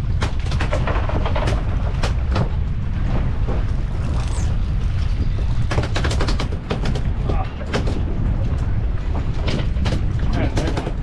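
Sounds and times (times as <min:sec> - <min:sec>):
sharp knocks and crackles: 0:00.0 - 0:11.0
wind buffeting microphone: 0:00.0 - 0:11.0.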